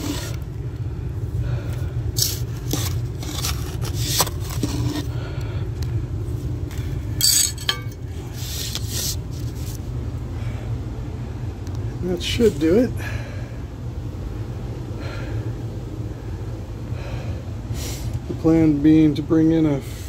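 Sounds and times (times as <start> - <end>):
steady low hum: 0.0 - 20.0
hand scraping dirt and gravel: 2.1 - 5.1.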